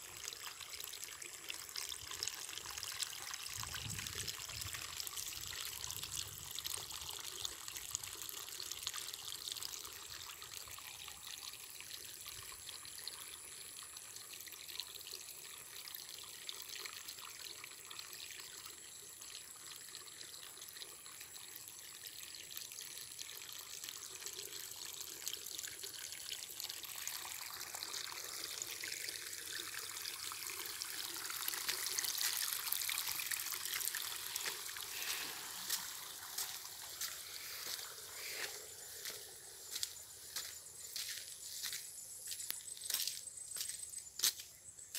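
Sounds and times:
floodwater flowing and trickling: 0.0s - 44.9s.

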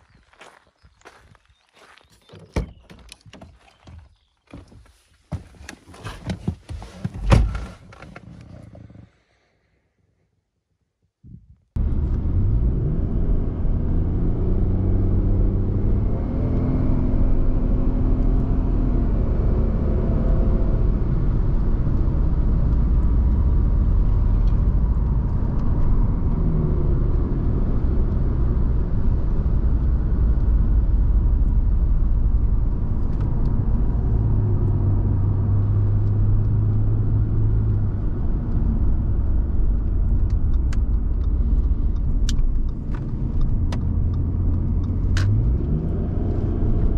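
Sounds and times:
road rumble inside car: 11.3s - 46.9s
car engine accelerating: 11.8s - 46.9s.

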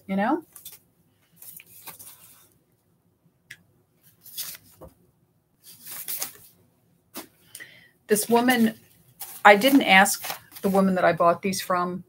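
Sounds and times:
paper envelope rustling: 0.5s - 2.5s, 4.1s - 4.9s, 5.6s - 6.6s, 8.1s - 11.0s.

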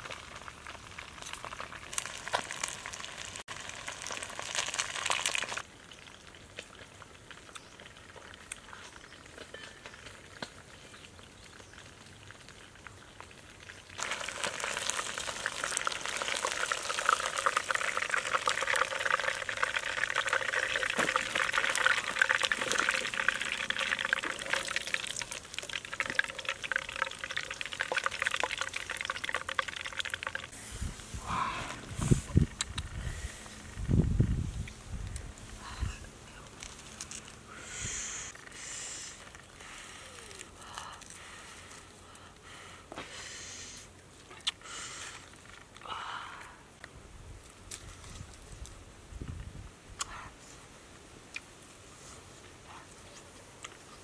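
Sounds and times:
fish frying in hot oil: 0.0s - 8.5s, 11.2s - 30.5s.

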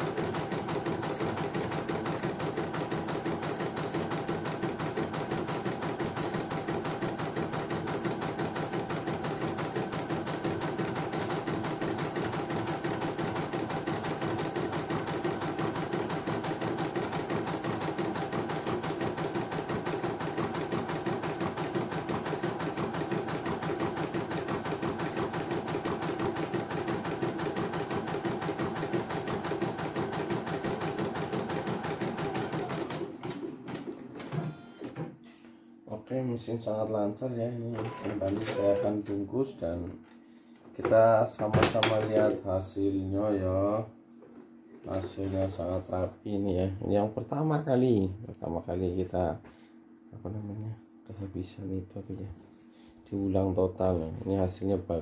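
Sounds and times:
embroidery machine needle patter: 0.0s - 33.4s.

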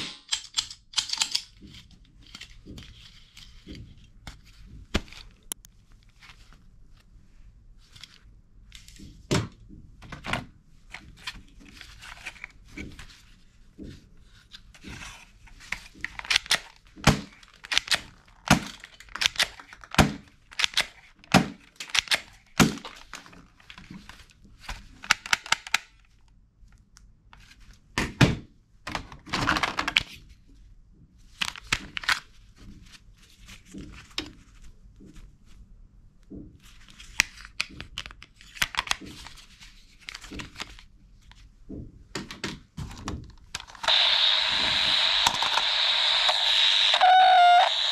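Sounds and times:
plastic toy guns clacking: 0.0s - 1.7s.

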